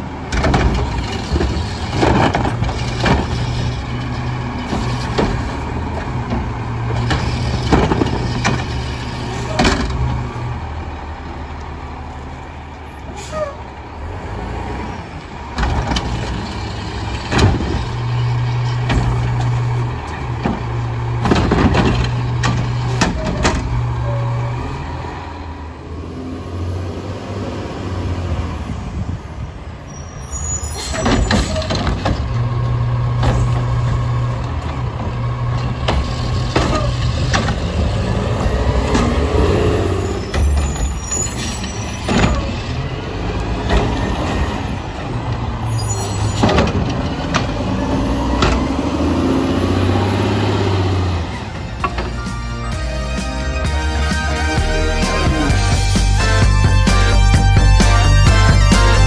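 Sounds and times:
garbage truck diesel engine: 0.0s - 59.0s
metal bangs and clanks: 0.2s - 10.3s, 15.5s - 24.2s, 30.8s - 49.3s.

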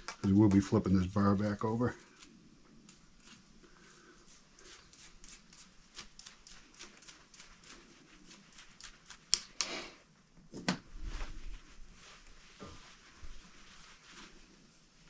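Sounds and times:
short rustle: 10.9s - 15.0s.

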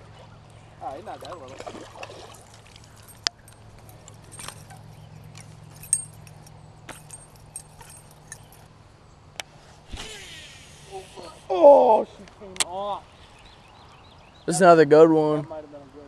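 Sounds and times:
light metallic jingling: 0.8s - 8.8s, 12.9s - 14.4s.

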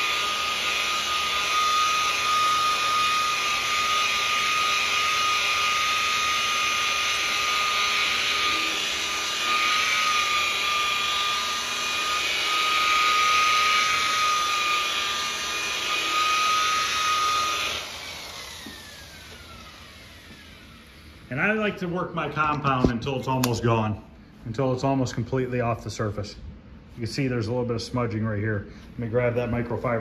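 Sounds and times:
polisher whining: 0.0s - 23.0s.

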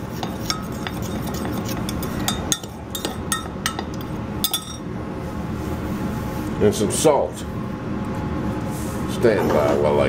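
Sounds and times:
metal spoon clinking against glass: 1.9s - 4.8s.

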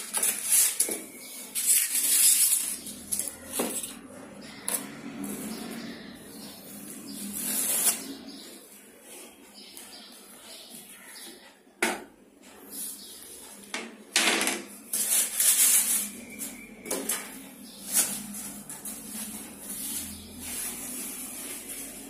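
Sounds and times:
plastic wrapping crinkling: 0.0s - 4.0s, 17.6s - 22.0s.

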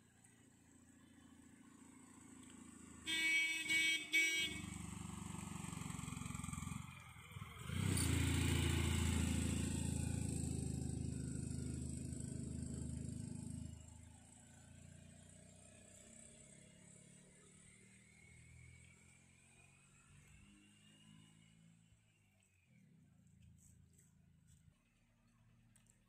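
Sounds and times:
van horn honking: 3.0s - 4.8s.

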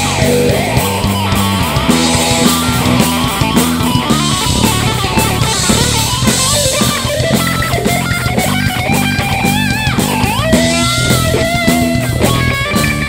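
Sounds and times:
drum kit steady beat: 0.0s - 13.0s
electric bass: 0.0s - 13.0s
electric guitar lead: 0.0s - 13.0s.

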